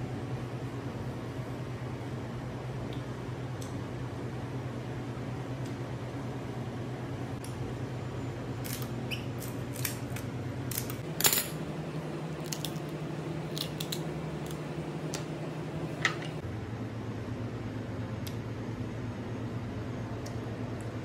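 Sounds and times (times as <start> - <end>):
steady low hum: 0.0 - 21.0
crab shell cracking: 12.4 - 12.9, 13.5 - 14.6.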